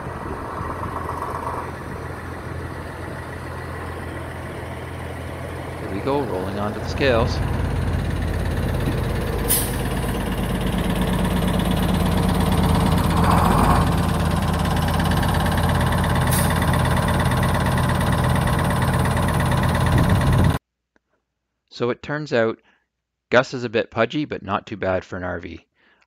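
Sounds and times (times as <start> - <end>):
bus diesel engine running: 0.0 - 20.6
truck engine idling: 0.0 - 20.6.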